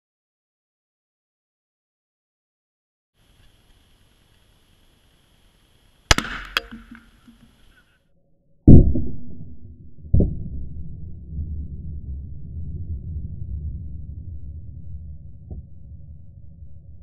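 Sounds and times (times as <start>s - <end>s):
rifle shot crack: 6.1s - 7.5s
deep slowed-down boom: 8.7s - 17.0s
low rumble: 8.7s - 17.0s.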